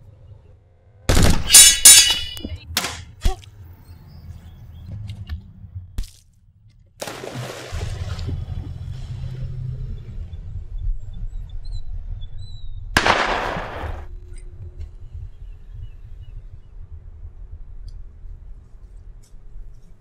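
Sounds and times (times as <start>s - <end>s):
loud metallic crashing hits: 1.1s - 2.4s.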